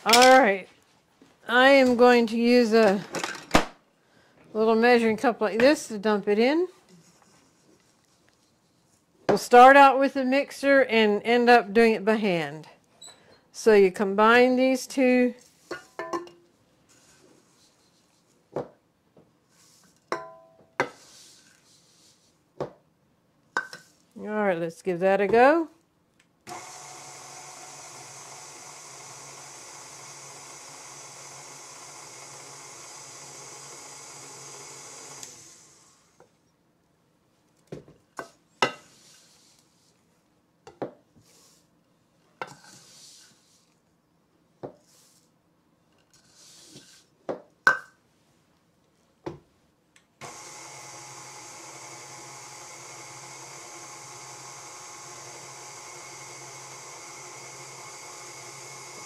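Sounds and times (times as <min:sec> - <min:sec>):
stand mixer running: 0:26.5 - 0:35.8, 0:50.2 - 0:59.0.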